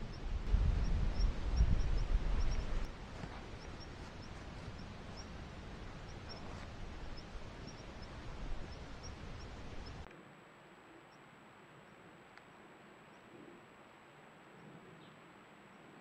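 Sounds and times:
wind rumbling on microphone: 0:00.0 - 0:10.1.

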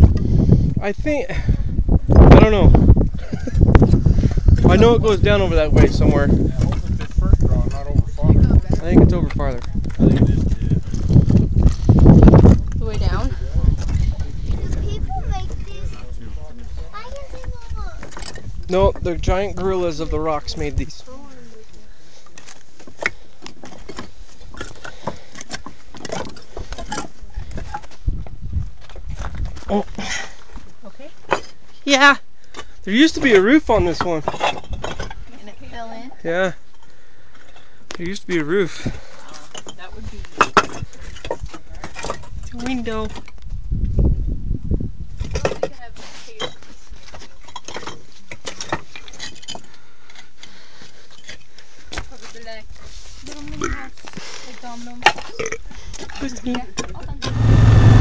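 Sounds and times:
wind buffeting microphone: 0:00.0 - 0:21.0, 0:27.4 - 0:29.7, 0:42.2 - 0:45.5, 0:56.9 - 0:58.0
footsteps on loose rocks: 0:08.4 - 0:13.0, 0:21.7 - 0:31.7
footsteps on loose rock slabs: 0:09.3 - 0:12.8.

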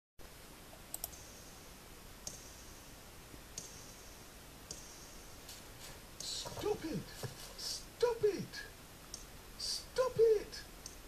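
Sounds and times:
low background hiss: 0:00.2 - 0:11.0
faint sharp clicks with hiss: 0:00.7 - 0:01.2, 0:02.2 - 0:02.5, 0:09.0 - 0:09.8, 0:10.8 - 0:11.0.

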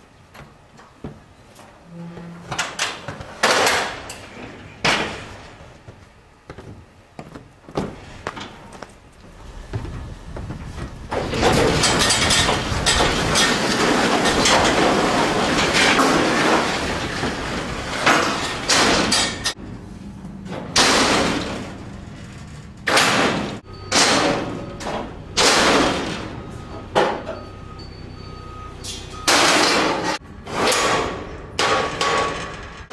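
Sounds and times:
metal trailer deck rattling: 0:10.1 - 0:19.6.

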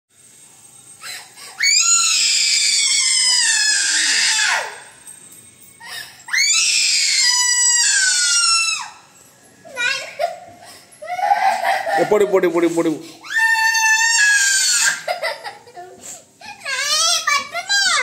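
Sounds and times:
boy screaming and crying: 0:01.5 - 0:04.9, 0:11.0 - 0:12.2, 0:13.2 - 0:18.0.

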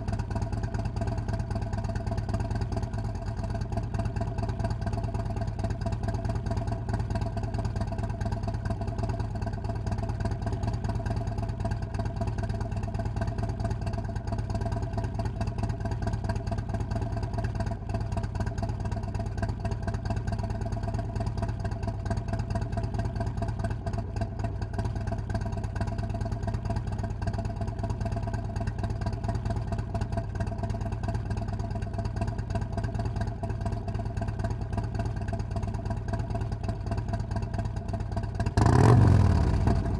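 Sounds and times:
motorcycle engine idling: 0:00.0 - 0:39.9.

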